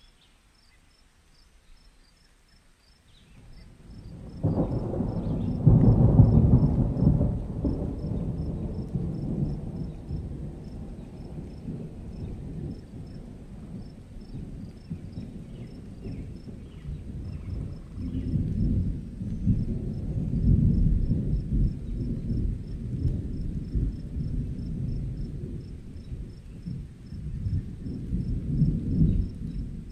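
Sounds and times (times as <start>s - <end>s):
thunder rumbling: 3.3s - 29.9s.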